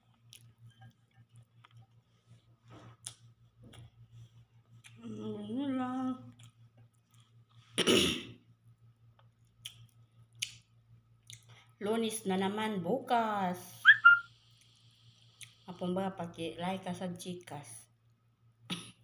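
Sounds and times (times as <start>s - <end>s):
chewing and mouth clicks: 0.0s - 2.4s, 3.0s - 4.0s, 4.6s - 5.0s, 6.3s - 7.6s, 9.2s - 11.6s.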